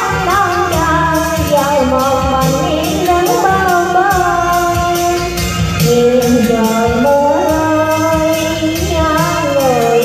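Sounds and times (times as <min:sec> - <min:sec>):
amplified backing music with beat: 0:00.0 - 0:10.0
woman singing into microphone: 0:00.0 - 0:10.0.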